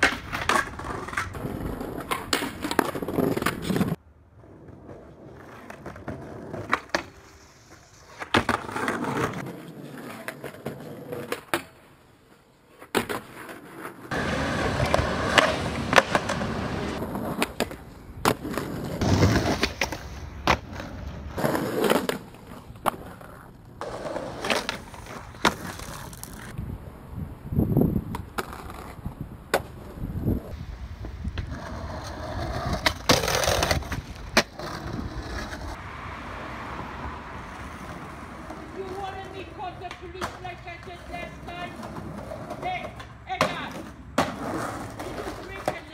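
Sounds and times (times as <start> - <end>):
skateboard pops and clacks: 0.0 - 1.4, 5.4 - 7.2, 8.2 - 11.8, 14.1 - 26.6, 38.9 - 45.9
skateboard landings: 0.0 - 12.0, 12.7 - 26.5, 28.0 - 35.8, 37.5 - 45.9
skateboard trucks grinding: 0.0 - 26.6, 28.0 - 45.9
skateboard wheels rolling: 0.0 - 45.9.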